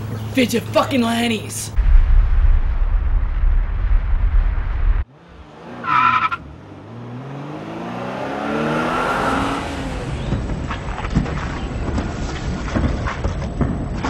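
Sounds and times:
deep explosion rumble: 0:01.7 - 0:05.1
car engine speeding up: 0:02.6 - 0:10.8.

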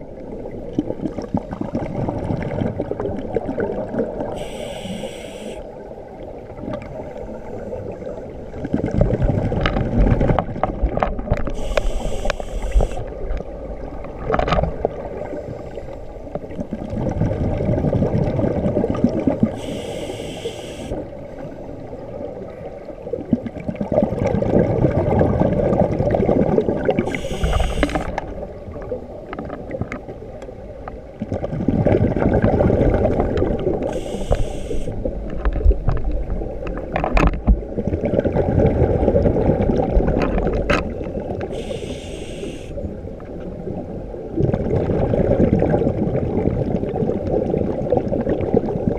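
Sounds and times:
regulator inhalation hiss: 0:04.4 - 0:05.6, 0:11.6 - 0:13.1, 0:19.6 - 0:21.0, 0:27.1 - 0:28.1, 0:33.9 - 0:35.0, 0:41.5 - 0:42.8
bubbling exhalation underwater: 0:23.4 - 0:28.5, 0:31.5 - 0:34.2, 0:44.4 - 0:48.9.

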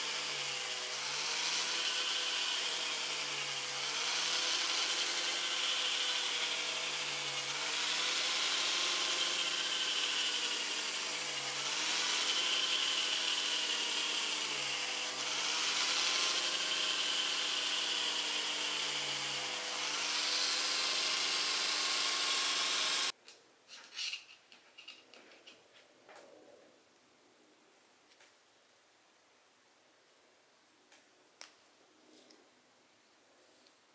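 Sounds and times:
rotary tool drilling plastic: 0:00.0 - 0:23.1.

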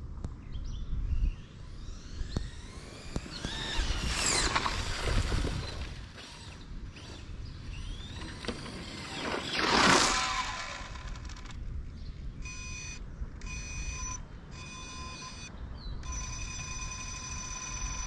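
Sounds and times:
rc car motor whine: 0:01.3 - 0:11.6, 0:12.5 - 0:18.0
rc car rushing past: 0:01.4 - 0:11.6.

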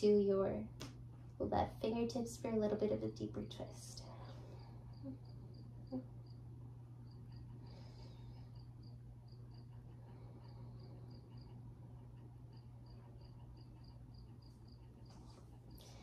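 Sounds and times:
steady low hum: 0:00.0 - 0:16.0
faint insect chirping: 0:04.0 - 0:16.0.

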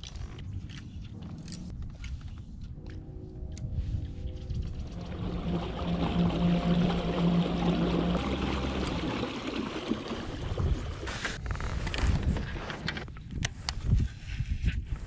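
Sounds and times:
low steady hum: 0:00.4 - 0:11.2
water splashing along kayak hull: 0:04.9 - 0:11.4.

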